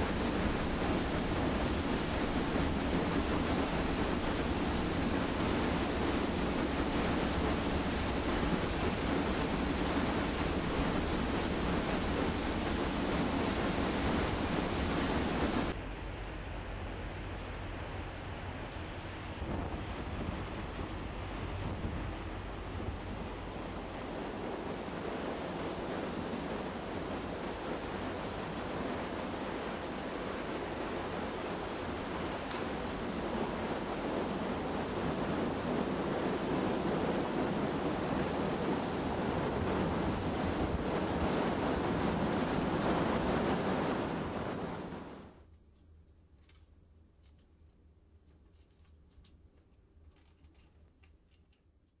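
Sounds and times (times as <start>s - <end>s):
low hum: 0.0s - 28.4s
ferry rushing through sea ice: 0.0s - 45.4s
wind: 0.0s - 52.0s.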